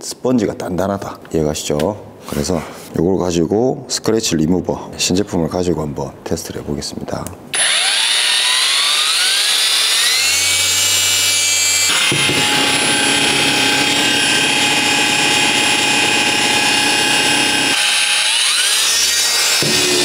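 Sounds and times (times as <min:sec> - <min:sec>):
polisher motor whine: 0:07.6 - 0:20.0.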